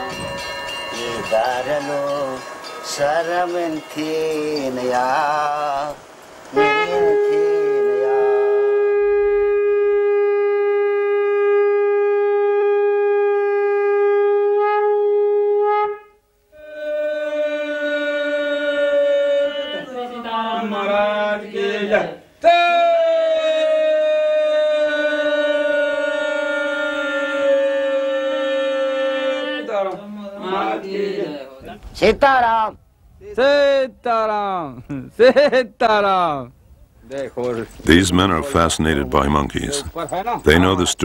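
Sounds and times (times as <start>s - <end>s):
wind instrument long notes: 0.0s - 20.0s.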